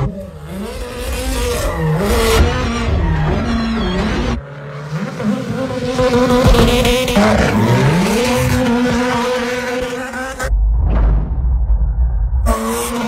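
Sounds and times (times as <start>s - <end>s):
rally car engine revving: 0.0s - 10.5s, 12.4s - 13.0s
tyre squeal: 1.2s - 4.4s.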